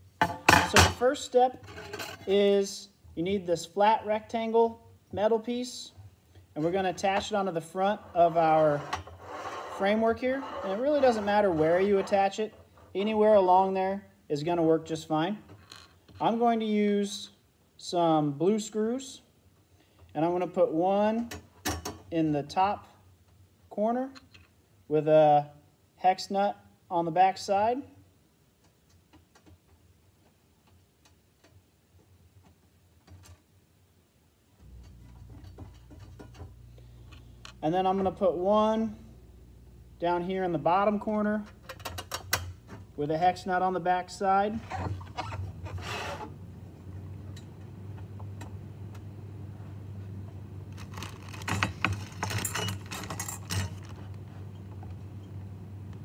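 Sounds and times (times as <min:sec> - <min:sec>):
low steady hum: 0:31.8 - 0:56.0.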